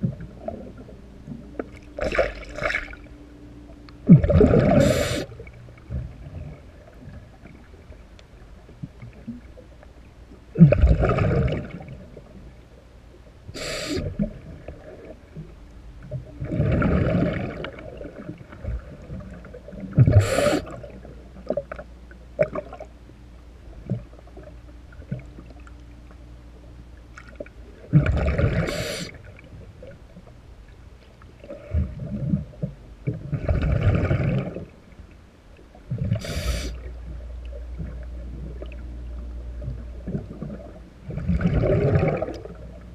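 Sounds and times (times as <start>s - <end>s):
exhaled bubbles underwater: 0.0s - 9.8s, 10.4s - 12.6s, 13.5s - 22.9s, 27.1s - 30.2s, 31.4s - 42.9s
short sharp hisses: 4.8s - 5.3s, 13.6s - 14.1s, 20.2s - 20.7s, 28.7s - 29.2s, 36.2s - 36.8s.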